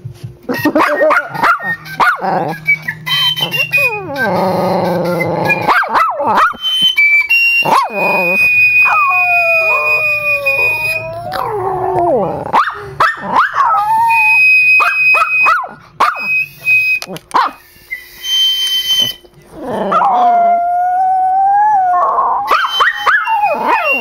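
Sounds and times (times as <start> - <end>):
dog howling and yipping: 0.6 - 6.7, 7.3 - 16.5, 19.5 - 24.0
high flute notes: 1.6 - 5.8, 6.5 - 11.9, 13.9 - 19.4.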